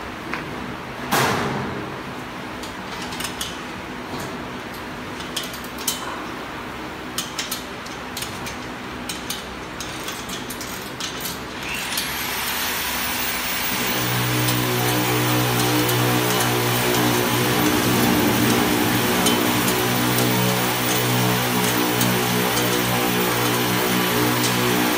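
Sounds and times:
workshop machine noise: 0:00.0 - 0:24.9
low machine hum: 0:11.6 - 0:24.9.

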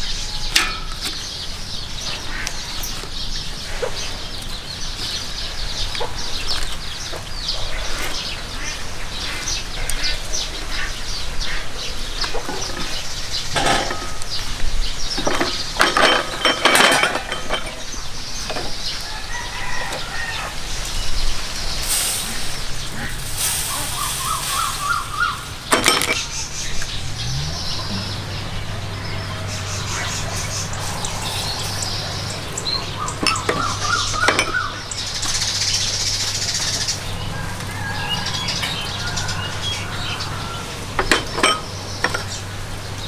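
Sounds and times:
chickens clucking: 0:00.0 - 0:43.0
loud knocks and clatters: 0:25.6 - 0:26.3.

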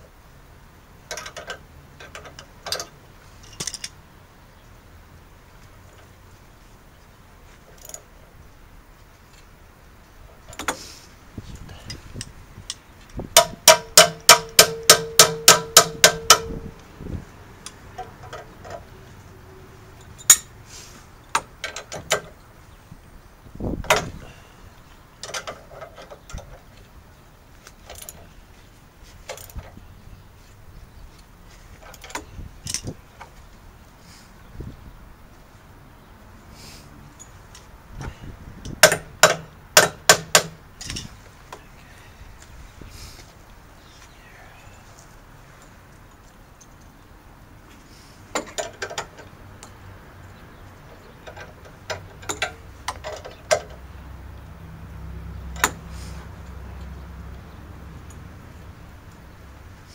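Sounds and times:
metal tools clicking and knocking: 0:01.1 - 0:04.0, 0:07.7 - 0:08.1, 0:11.8 - 0:16.8, 0:17.6 - 0:18.9, 0:20.0 - 0:20.5, 0:21.3 - 0:22.5, 0:25.2 - 0:26.8, 0:27.6 - 0:28.4, 0:29.2 - 0:29.8, 0:31.8 - 0:33.3, 0:38.6 - 0:41.6, 0:48.3 - 0:53.9, 0:55.5 - 0:57.0.

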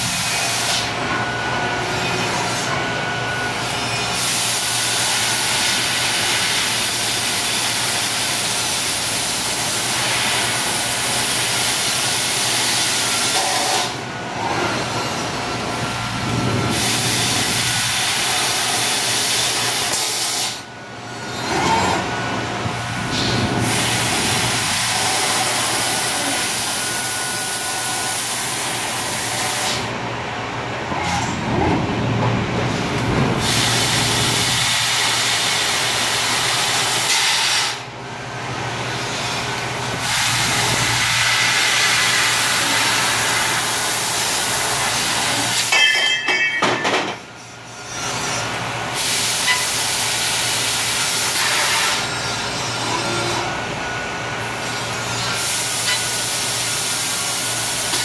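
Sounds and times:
laser cutter hissing: 0:03.6 - 0:14.1, 0:14.9 - 0:20.7, 0:22.8 - 0:29.9, 0:33.4 - 0:37.9, 0:39.0 - 0:45.7, 0:47.6 - 0:53.6, 0:54.4 - 0:58.0.

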